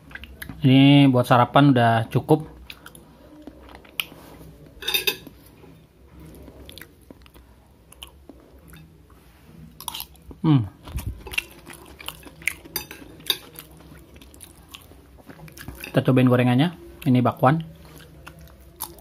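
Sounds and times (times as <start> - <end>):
chewing: 2.6 - 4.4, 6.2 - 8.9, 9.8 - 16.0, 16.9 - 19.0
cutlery clinking on a plate: 4.8 - 5.3, 12.1 - 13.6.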